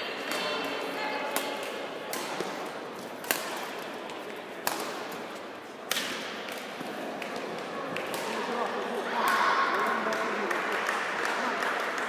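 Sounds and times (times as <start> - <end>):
steady background noise: 0.0 - 12.0
rackets striking shuttlecock: 0.2 - 9.5.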